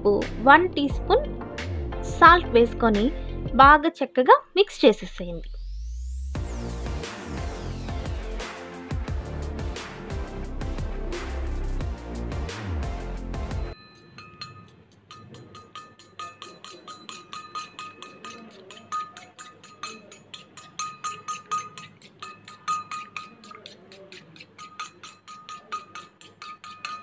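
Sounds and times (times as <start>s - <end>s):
fork clinking against metal bowl: 13.7s - 27.0s.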